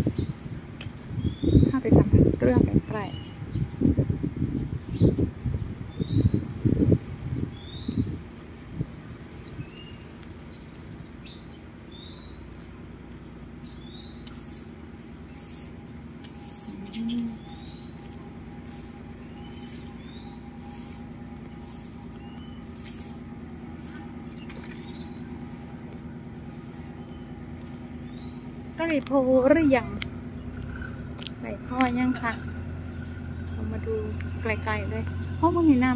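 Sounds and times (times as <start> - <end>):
low engine hum: 0.0 - 35.9
small birds chirping: 0.0 - 35.9
pulsing high hiss: 14.3 - 24.2.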